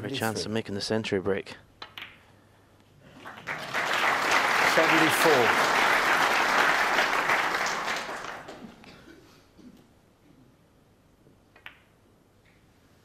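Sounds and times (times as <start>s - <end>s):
snooker balls clicking: 1.8s - 2.3s, 11.5s - 12.6s
audience applauding: 3.2s - 8.8s.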